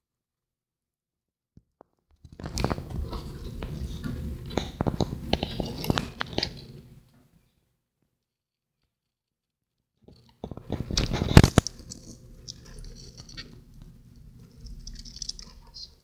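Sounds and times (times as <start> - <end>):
phone handling rubbing and rustling: 2.3 - 6.6, 10.4 - 13.6.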